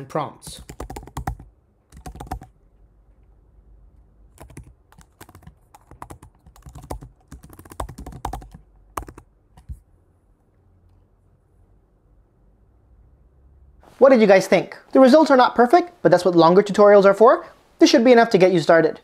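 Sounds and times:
computer keyboard typing: 0.5s - 2.6s, 4.3s - 9.8s.

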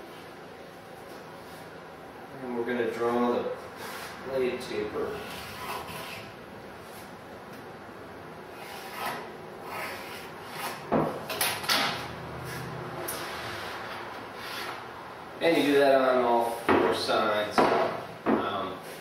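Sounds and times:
rule scraping on wood: 8.5s - 10.9s, 13.9s - 14.8s.

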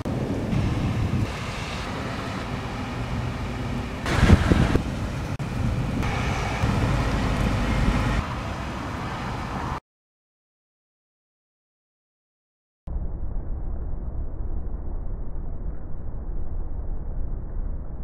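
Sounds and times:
rain: 0.0s - 9.8s
wind: 0.0s - 9.8s
loud thunder crack: 4.1s - 5.0s.

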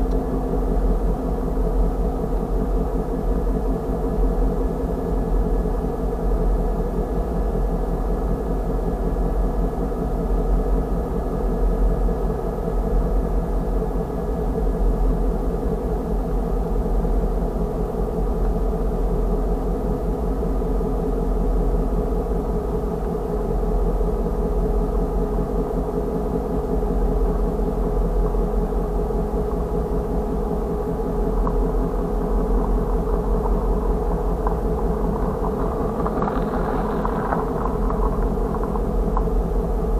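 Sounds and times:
engine idling: 30.0s - 39.9s.

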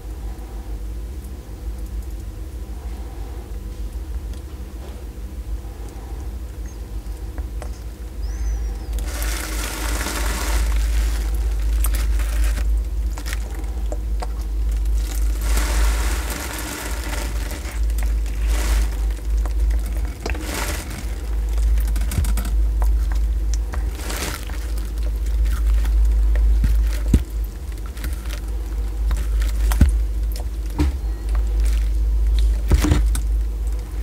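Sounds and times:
steady low hum: 0.0s - 34.0s
tortoise biting and chewing: 8.6s - 34.0s.

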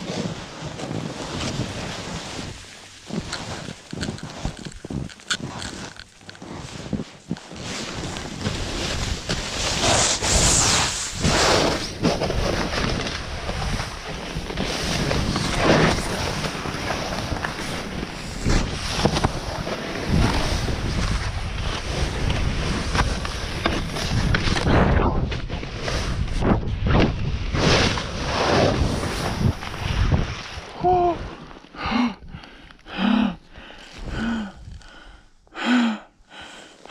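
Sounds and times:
snowboard hissing on snow: 9.5s - 12.0s.

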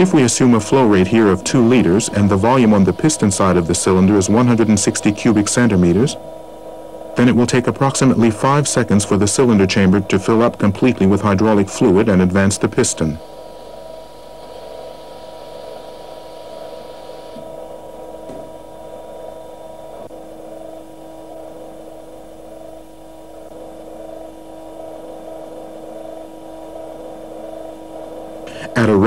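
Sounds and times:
high hiss: 0.0s - 6.2s, 7.0s - 18.4s
hydraulic power unit humming: 0.0s - 29.0s.

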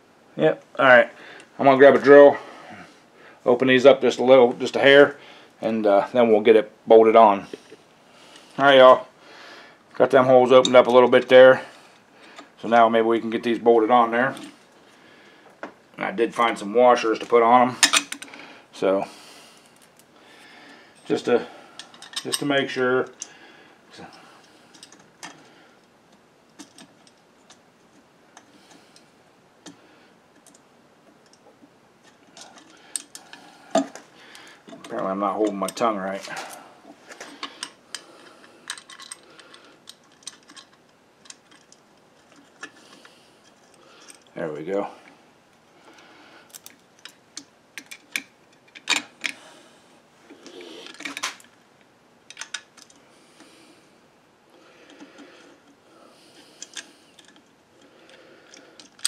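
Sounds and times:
metallic clicks and clinks: 37.2s - 42.8s.

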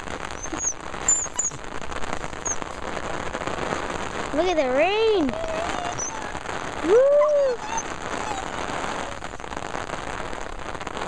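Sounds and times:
steady rain patter: 0.0s - 11.0s
person calling woo: 5.2s - 8.4s.

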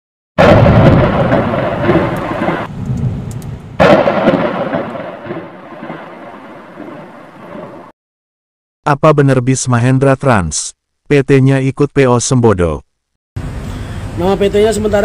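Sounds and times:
thunder rumbling: 0.4s - 7.9s.

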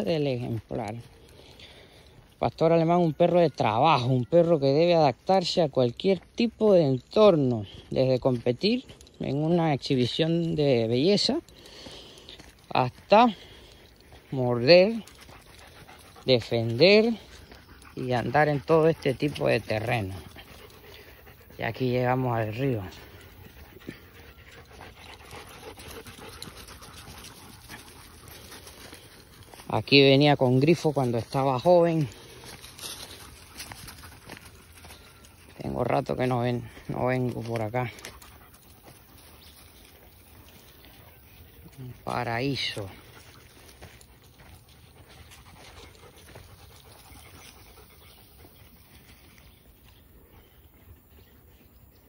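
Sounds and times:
dogs panting: 0.0s - 52.0s
rustling dry leaves underfoot: 0.0s - 52.0s.

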